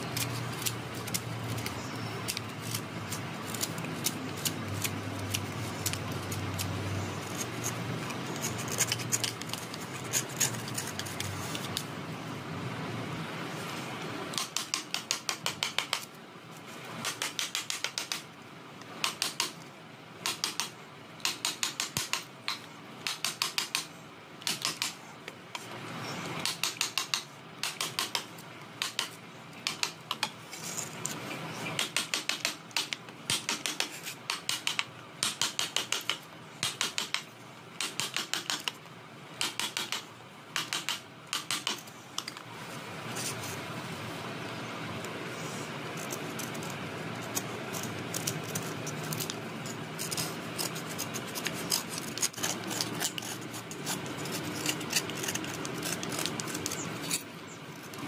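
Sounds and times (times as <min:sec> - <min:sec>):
chisel scraping wood: 0:00.1 - 0:11.8, 0:45.4 - 0:58.0
chisel striking wood: 0:31.8 - 0:37.2, 0:37.8 - 0:38.7, 0:39.4 - 0:40.0, 0:40.6 - 0:41.8.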